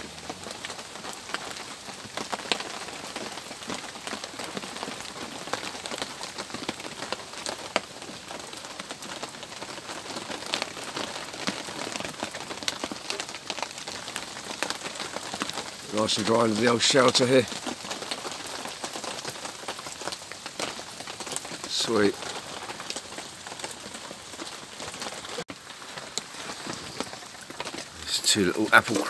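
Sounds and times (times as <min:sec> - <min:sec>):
heavy rain pouring: 0:00.0 - 0:29.0
raindrops hitting shelter: 0:00.0 - 0:29.0.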